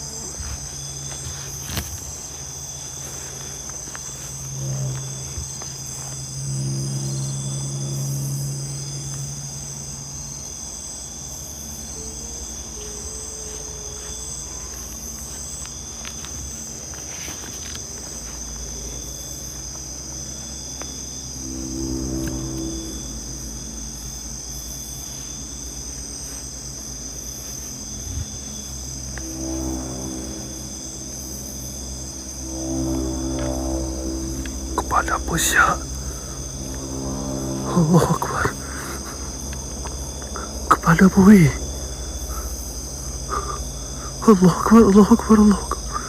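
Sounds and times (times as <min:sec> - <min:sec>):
low hum: 0:00.0 - 0:46.0
night insects chirping: 0:00.0 - 0:46.0.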